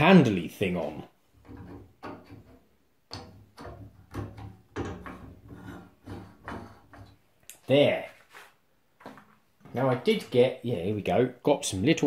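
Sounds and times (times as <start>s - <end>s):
handwheel scraping on spindle: 5.4s - 6.9s.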